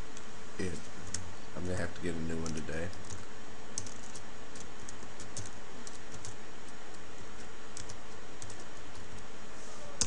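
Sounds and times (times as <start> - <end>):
keyboard typing: 2.3 - 9.3.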